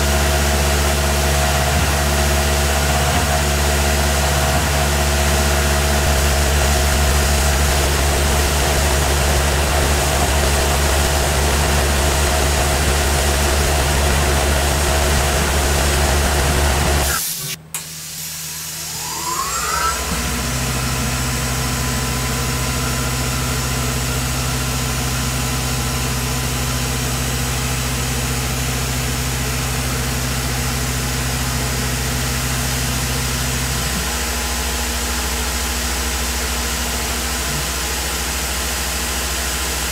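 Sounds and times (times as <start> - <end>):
milling machine running: 0.0 - 39.9
short rising machine whine: 4.1 - 24.8.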